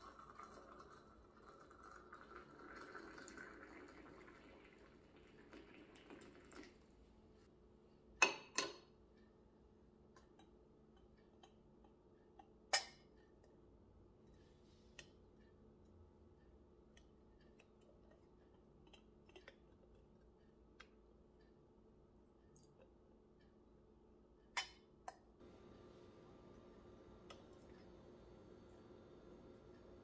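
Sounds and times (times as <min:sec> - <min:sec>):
hot water pouring into teapot: 0:00.0 - 0:07.0.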